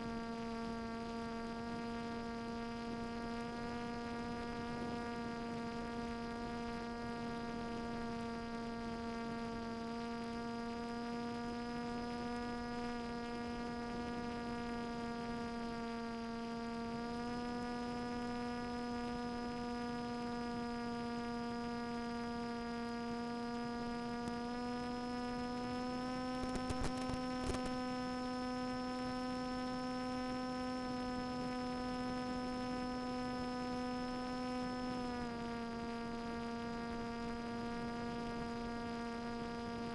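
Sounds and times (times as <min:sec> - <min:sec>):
electric motor and propeller hum: 0:00.0 - 0:39.9
brief crackles: 0:26.4 - 0:27.8.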